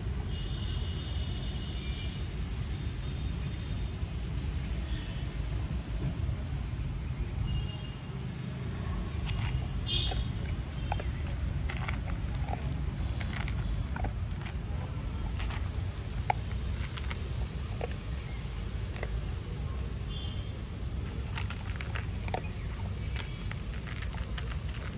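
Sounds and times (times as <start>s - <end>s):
dog crunching dry kibble: 8.4s - 19.6s, 20.8s - 24.9s
steady low rumble: 8.6s - 24.9s.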